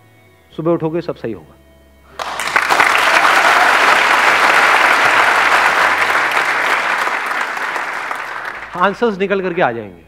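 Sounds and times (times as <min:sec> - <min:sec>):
audience applauding: 0:02.2 - 0:09.8.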